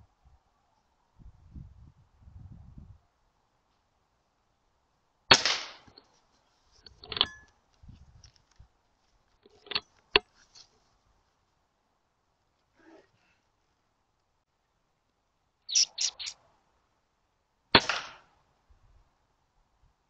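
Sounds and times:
air rifle firing: 5.3 - 5.9, 17.8 - 18.3.

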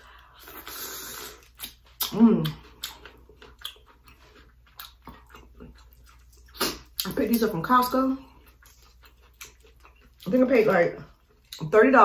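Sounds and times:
chewing with lip smacks: 0.1 - 7.5, 8.2 - 11.7
wet sucking noise: 0.4 - 1.6.

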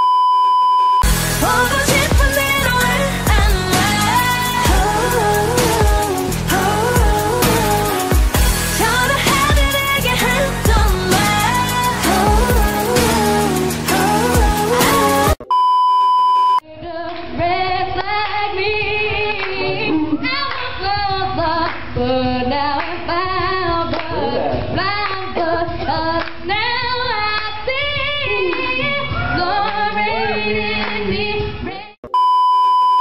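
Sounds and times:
pop track: 1.0 - 15.6
high test-tone beep: 15.4 - 16.6, 32.1 - 33.0
woman singing muffled: 16.6 - 32.0.

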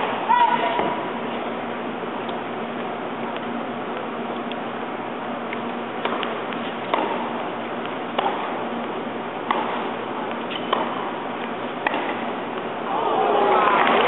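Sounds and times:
arena hum: 0.0 - 14.0
ball bounce clicks: 5.4 - 12.7
tennis ball struck by racket: 6.0 - 12.7.

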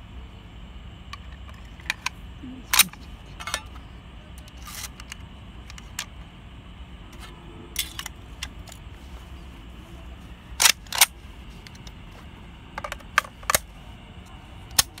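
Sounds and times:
metallic clicks of rifle parts: 1.1 - 3.8, 4.4 - 6.1, 7.8 - 8.8, 10.6 - 11.9, 12.8 - 13.7, 14.7 - 15.0.

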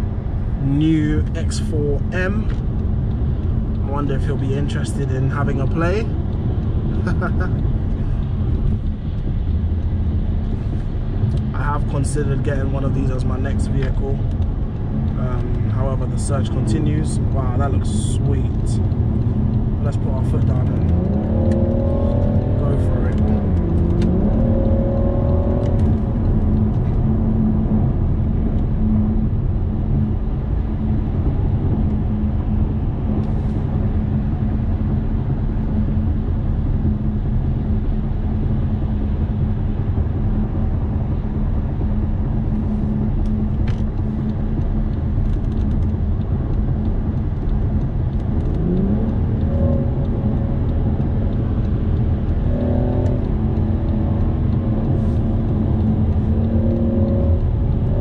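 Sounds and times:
car engine drone: 0.0 - 58.0
road and tyre rumble: 0.0 - 58.0.

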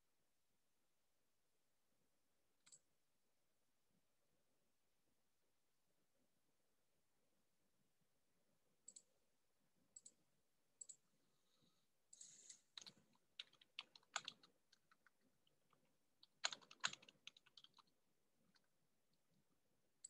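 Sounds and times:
keyboard typing and clicks: 8.8 - 9.1, 9.9 - 10.2, 10.8 - 11.0, 12.1 - 19.4.

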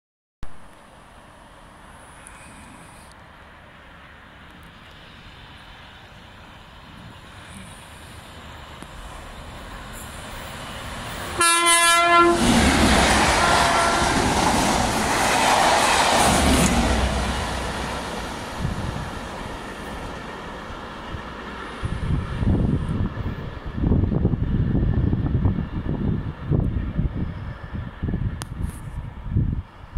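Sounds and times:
train rushing past: 5.0 - 28.4
train horn blast: 11.3 - 14.4.

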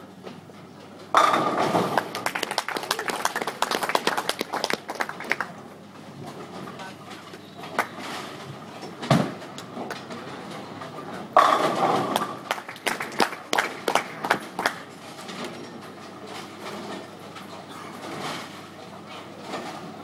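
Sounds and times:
bowling ball rolling on lane: 1.1 - 2.7, 11.2 - 14.6
bowling pins crashing and clattering: 1.2 - 2.3, 11.0 - 13.9.

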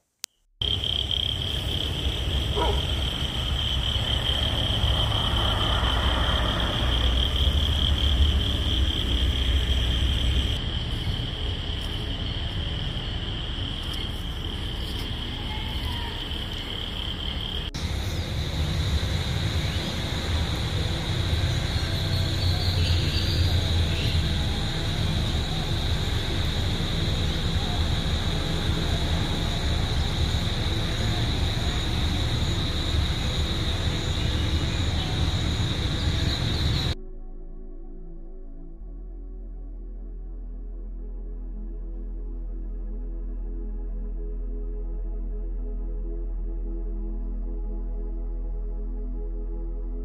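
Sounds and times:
insects droning: 0.6 - 37.0
low rumble: 0.6 - 48.8.

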